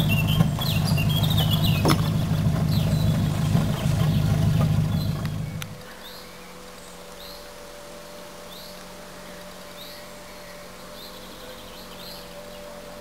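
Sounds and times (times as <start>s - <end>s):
bird chirping: 0.0s - 7.5s, 9.8s - 12.8s
steady low hum: 0.0s - 13.0s.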